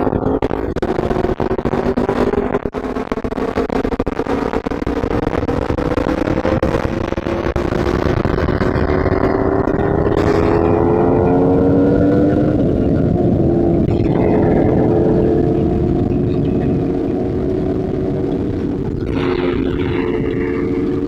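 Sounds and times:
motorcycle engine under throttle: 0.0s - 21.0s
wind rush on microphone: 0.0s - 21.0s.

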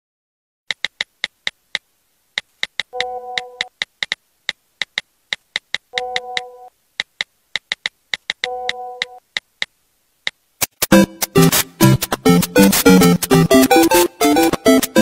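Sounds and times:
phone keyboard tap clicks: 0.7s - 1.8s, 2.4s - 9.7s.

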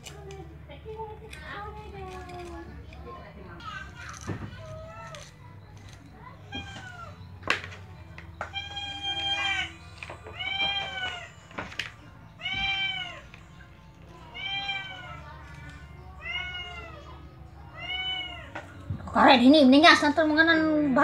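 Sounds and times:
cat meowing: 8.5s - 11.4s, 12.4s - 13.3s, 14.2s - 15.4s, 16.2s - 18.7s.

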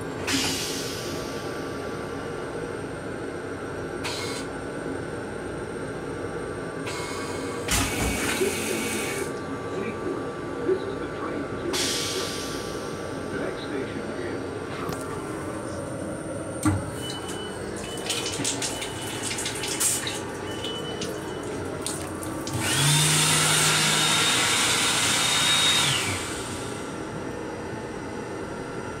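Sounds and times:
faucet running: 16.9s - 25.6s
hand dryer blowing: 17.6s - 27.0s
motor whine: 20.3s - 29.0s.

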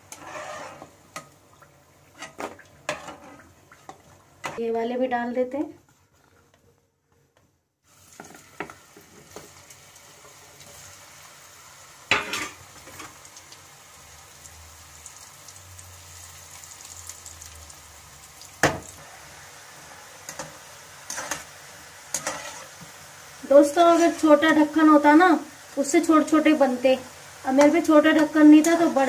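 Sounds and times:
snacks sizzling in hot oil: 7.8s - 29.0s.

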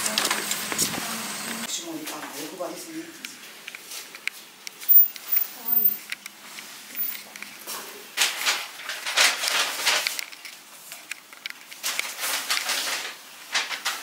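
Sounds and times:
crinkly rustling: 3.4s - 14.0s.

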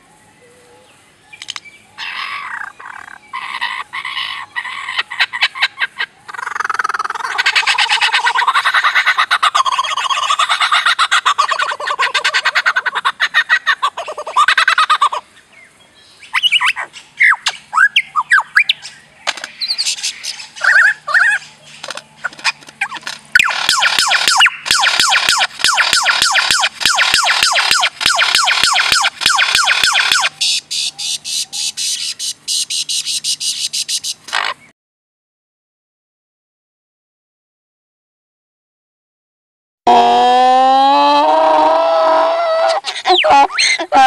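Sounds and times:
lyrebird singing: 0.1s - 34.7s, 42.1s - 44.0s.

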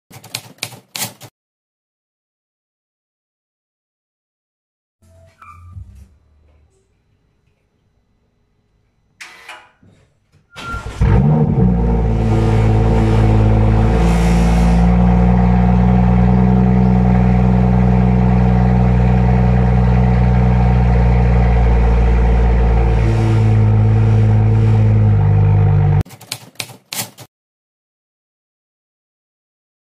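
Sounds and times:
car engine starting and idling: 10.6s - 26.0s.

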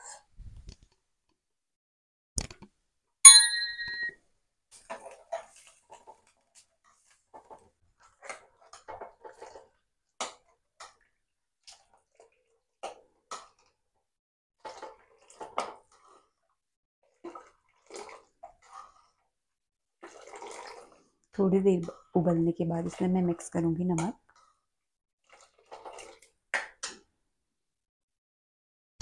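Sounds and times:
ladle stirring liquid: 4.8s - 13.8s, 14.6s - 27.0s.

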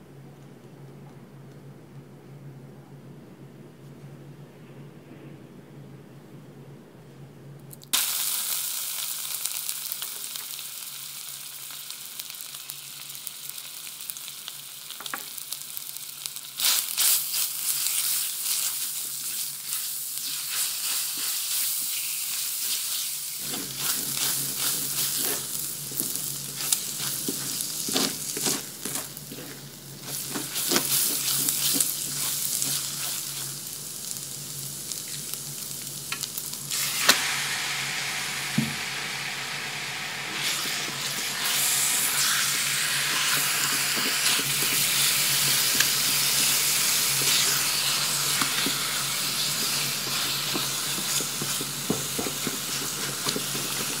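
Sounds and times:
garlic sizzling in hot oil: 7.9s - 54.0s
spatula stirring in pan: 16.6s - 34.2s, 40.4s - 54.0s.

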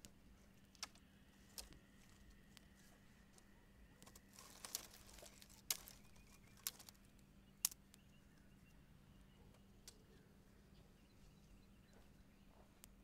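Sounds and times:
campfire crackling and popping: 4.0s - 8.1s.

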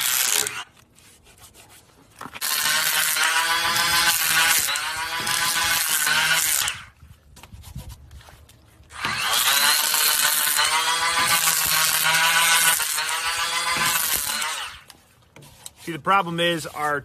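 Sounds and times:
electric hand planer whining: 2.4s - 6.8s, 9.0s - 14.9s.

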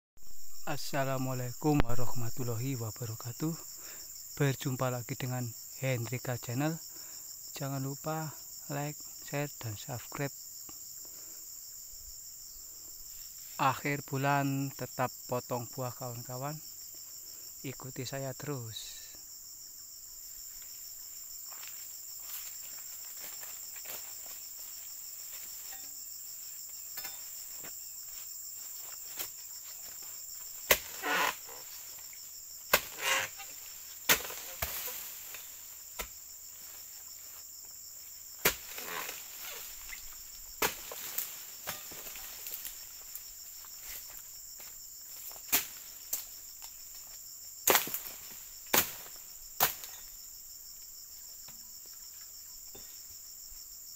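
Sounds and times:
insect chorus: 0.2s - 53.9s
leaves rustling: 20.1s - 50.3s
blade striking palm fronds: 30.6s - 31.4s, 32.7s - 36.2s, 38.4s - 39.9s, 40.6s - 42.8s, 45.3s - 46.3s, 47.6s - 50.0s.

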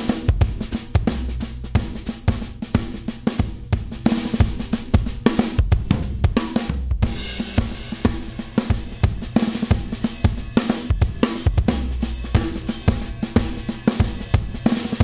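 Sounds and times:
drum kit playing a steady beat: 0.0s - 15.0s.

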